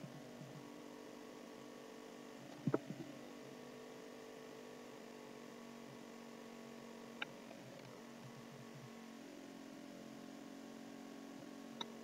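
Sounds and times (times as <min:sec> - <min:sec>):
faint low hum: 0:00.0 - 0:04.7.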